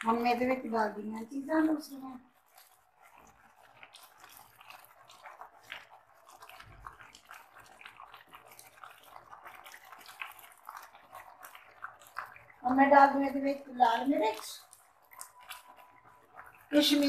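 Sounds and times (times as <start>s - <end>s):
sauce simmering and spluttering: 0.0s - 17.0s
spatula stirring in a pan: 0.0s - 17.0s.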